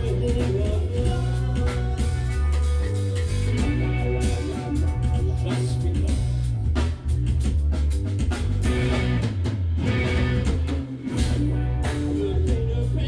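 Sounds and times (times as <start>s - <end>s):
live band playing: 0.0s - 13.0s
drum hits: 4.4s - 12.7s.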